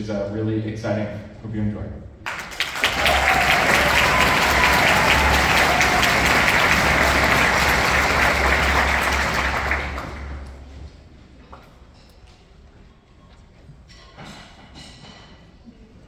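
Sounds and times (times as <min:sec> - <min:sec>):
audience applauding: 0:02.3 - 0:10.8.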